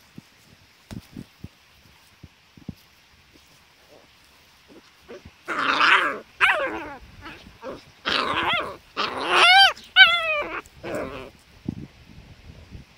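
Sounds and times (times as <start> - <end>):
dog growling and yipping: 4.7 - 11.4
dog yelping: 5.1 - 11.3.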